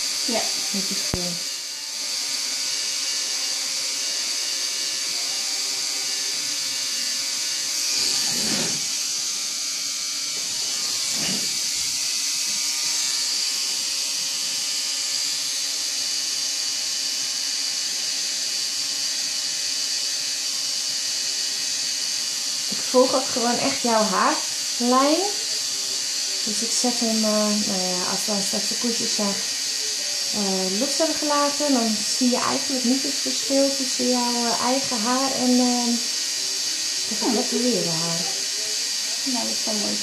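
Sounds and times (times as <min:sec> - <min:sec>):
tattoo machine buzzing: 0:00.0 - 0:40.0.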